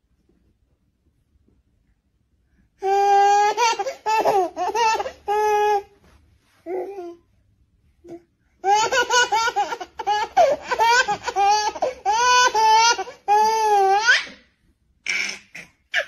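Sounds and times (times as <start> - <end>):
baby laughing and squealing: 2.8 - 5.9, 8.6 - 16.0.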